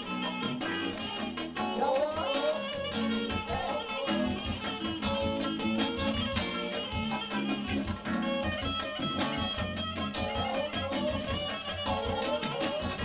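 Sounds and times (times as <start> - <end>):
plucked string music: 0.0 - 13.0.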